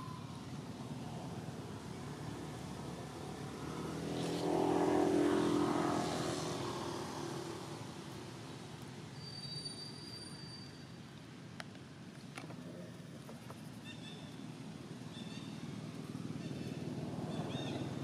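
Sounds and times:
vehicle passing by: 0.0 - 8.8, 14.5 - 18.0.

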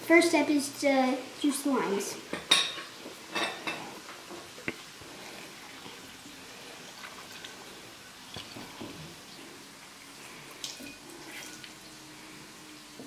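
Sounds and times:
faint lime squeezing: 3.8 - 12.5.

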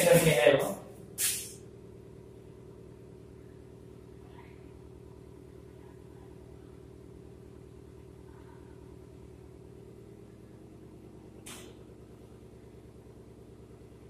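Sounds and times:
faint low hum: 1.8 - 14.0.

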